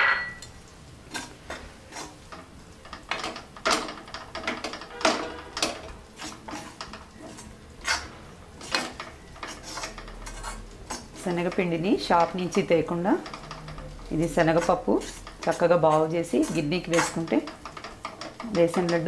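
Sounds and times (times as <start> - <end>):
spoon scraping metal pan: 4.4 - 19.0.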